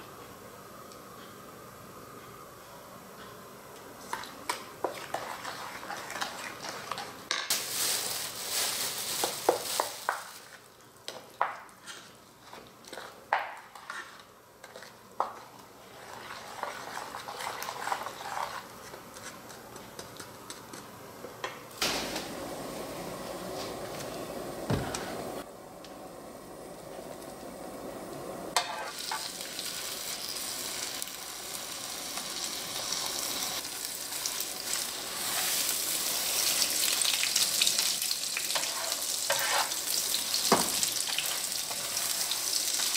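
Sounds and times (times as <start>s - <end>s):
spoon scraping thick paste: 15.9s - 19.6s.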